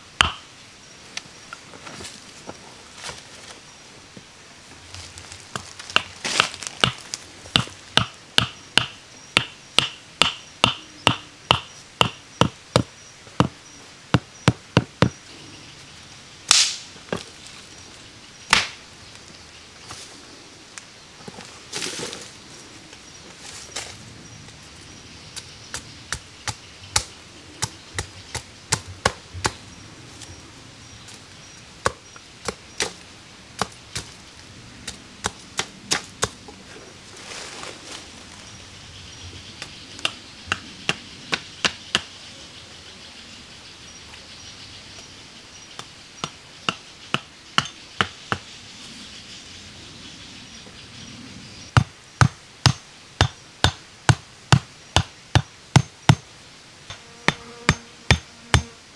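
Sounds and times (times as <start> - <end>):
hand tool chopping wood: 5.9 - 13.5.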